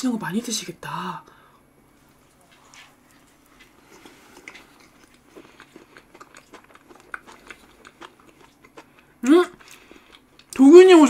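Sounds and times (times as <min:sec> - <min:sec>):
chewing cake: 0:02.2 - 0:10.8.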